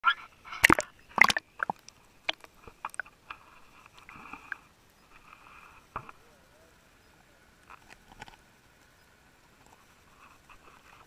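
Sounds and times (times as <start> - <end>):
small waves splashing: 0.0 - 4.9
faint high underwater hum: 0.0 - 11.0.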